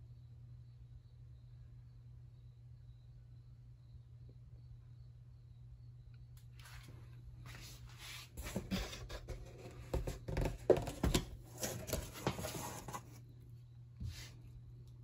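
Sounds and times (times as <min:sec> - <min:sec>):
handling rustling and scratching: 0:07.5 - 0:13.2.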